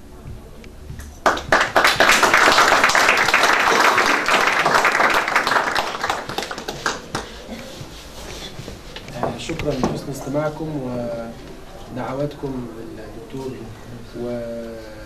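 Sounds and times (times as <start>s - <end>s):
audience applauding: 1.2s - 7.5s.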